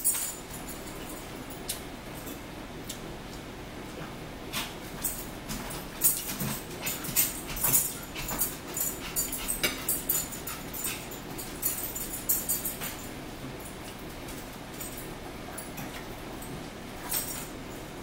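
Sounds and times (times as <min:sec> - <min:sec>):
dog panting: 0:06.4 - 0:11.2.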